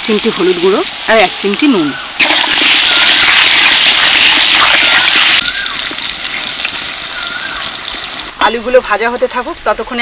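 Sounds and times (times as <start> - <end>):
potatoes sizzling in hot oil: 0.0 - 5.4.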